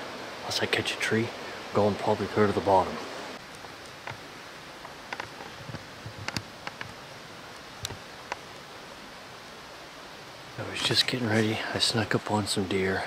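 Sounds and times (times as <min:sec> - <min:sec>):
outdoor hiss: 0:00.0 - 0:13.0
leaves and twigs crackling underfoot: 0:03.4 - 0:08.8.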